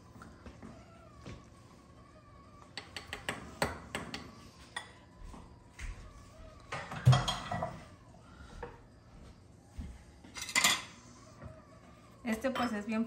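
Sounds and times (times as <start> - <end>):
dishes clattering down: 6.8 - 7.8, 10.4 - 11.0.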